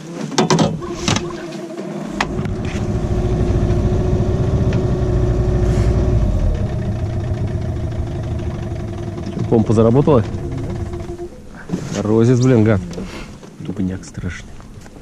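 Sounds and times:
outboard motor running: 0.6 - 13.4.

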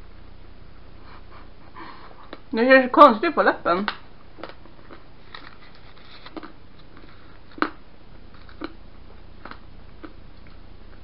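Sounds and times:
low room hum: 0.0 - 11.0
person eating candy: 4.4 - 8.8.

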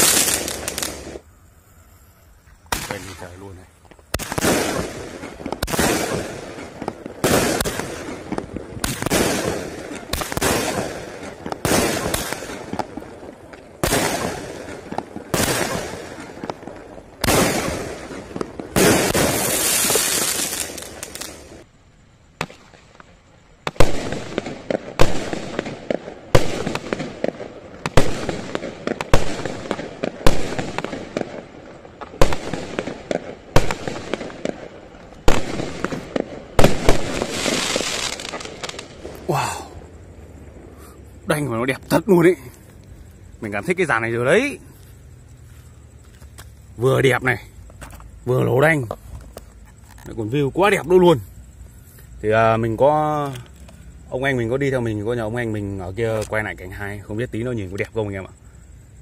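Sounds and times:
firework bangs: 0.0 - 1.3, 2.6 - 21.7, 22.3 - 42.6
firework hiss: 0.0 - 49.9.

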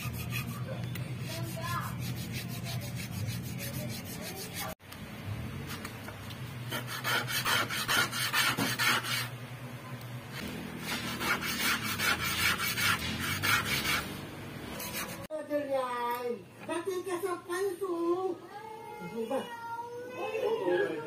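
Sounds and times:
wood sanded by hand: 0.0 - 4.8, 6.7 - 9.3, 10.8 - 14.1.

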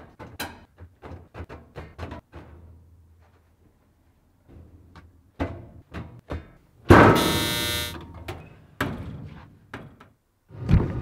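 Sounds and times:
clothes dryer electric buzz: 7.2 - 7.9.

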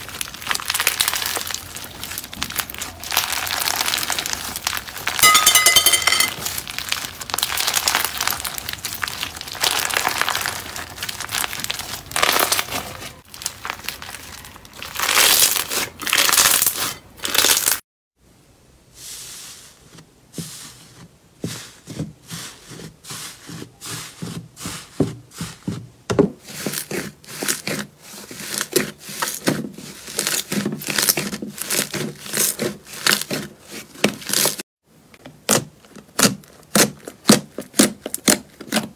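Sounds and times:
slime crackling when stretched: 0.0 - 5.2, 6.4 - 17.8
slime popping and squelching: 0.0 - 17.8.

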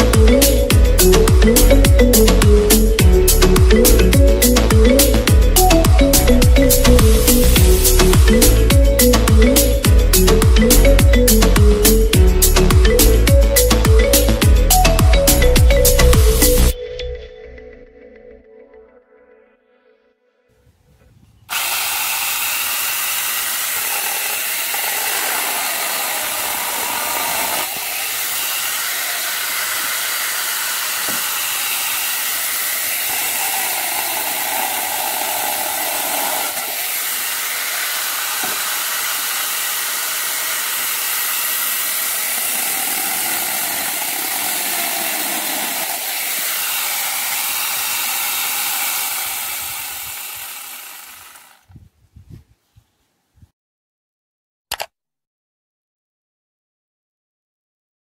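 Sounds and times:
chainsaw attachment cutting logs: 0.0 - 16.7, 21.5 - 51.8.

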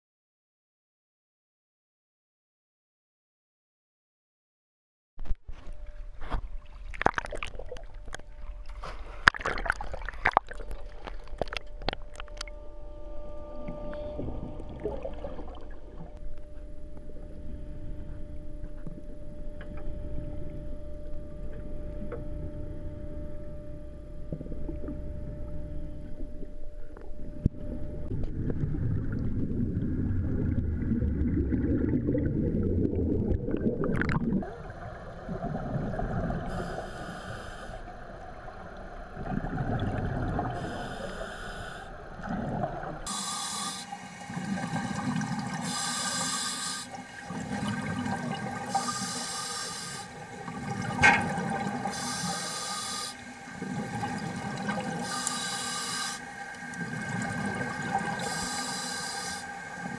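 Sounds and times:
underwater churning water and bubbles: 5.8 - 12.7, 13.6 - 59.9
diver breathing through regulator: 36.1 - 38.0, 40.5 - 42.2, 43.1 - 45.0, 45.6 - 47.5, 48.6 - 50.4, 51.8 - 53.8, 55.0 - 56.4, 58.1 - 59.9.

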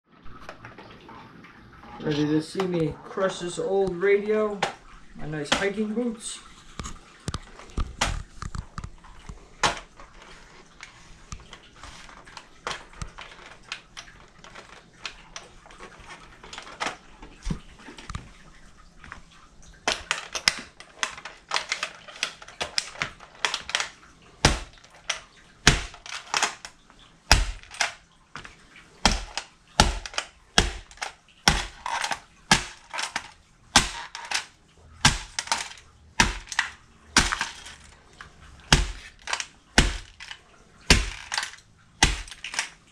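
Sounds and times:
boots crushing plastic radio: 7.4 - 10.0, 19.9 - 26.7, 27.3 - 37.9, 38.7 - 42.7.

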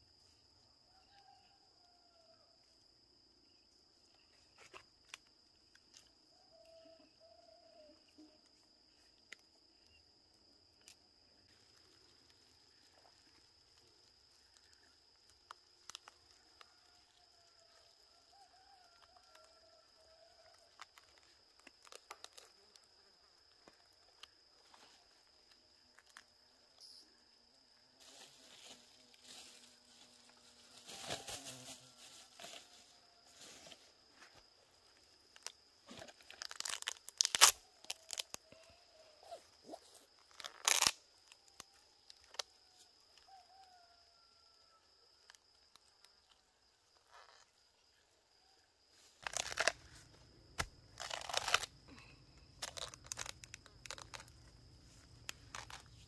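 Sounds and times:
rotting palm trunk tearing and crunching: 35.9 - 38.4, 40.3 - 41.0, 49.2 - 49.8, 50.5 - 51.7, 52.6 - 54.4.

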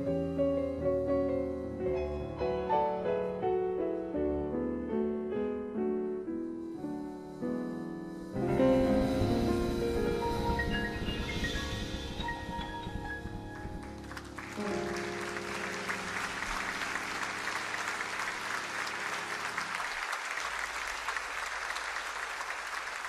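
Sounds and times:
piano and bass chord: 0.0 - 20.0
audience applause: 12.6 - 23.0.

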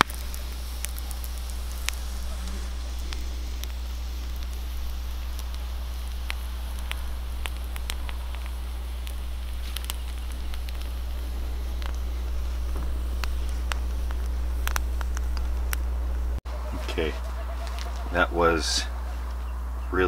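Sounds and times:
campfire crackling and popping: 0.0 - 20.0
steady low hum: 0.0 - 20.0.

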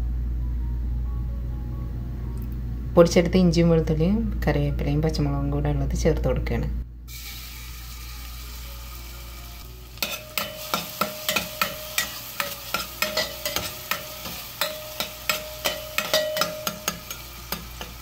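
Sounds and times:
spices sizzling in hot oil: 7.1 - 18.0
steel spoon scraping a pot: 10.0 - 18.0.

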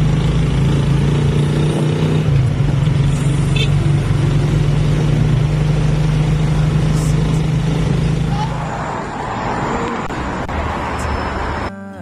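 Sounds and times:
engine low hum: 0.0 - 8.8.

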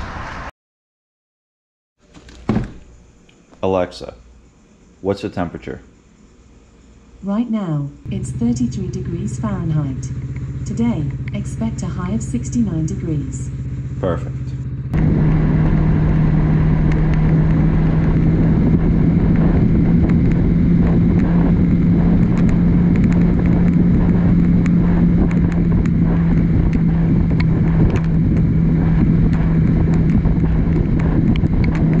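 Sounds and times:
motorcycle engine cruising: 8.1 - 32.0
wind rushing over microphone: 14.8 - 32.0.

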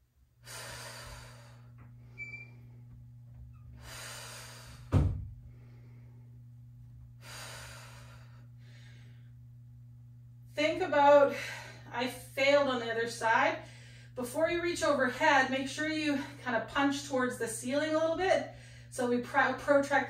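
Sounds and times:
steady low hum: 0.0 - 20.0
sharp thump: 4.9 - 5.3.

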